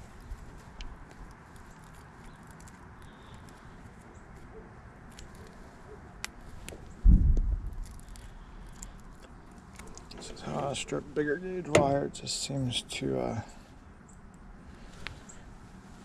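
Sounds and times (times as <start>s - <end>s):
clicks and scrapes of wire stripping: 0.0s - 4.5s, 5.1s - 5.6s, 7.7s - 10.6s.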